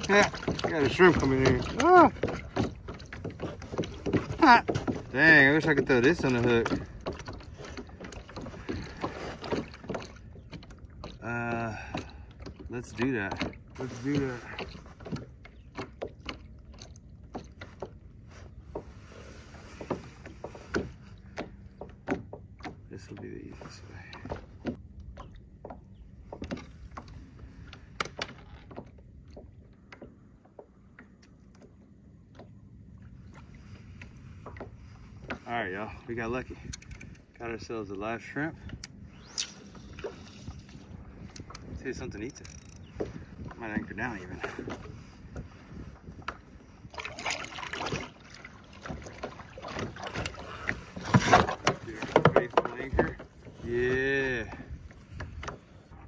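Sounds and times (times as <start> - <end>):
wind and water rumble: 0.0 - 56.0
clicks and taps of fishing tackle: 36.6 - 37.4, 41.3 - 43.6, 55.2 - 55.6.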